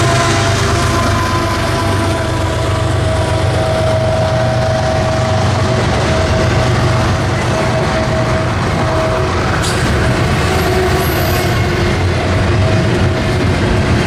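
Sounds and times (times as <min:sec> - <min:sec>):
freight train rumbling: 0:00.0 - 0:14.0.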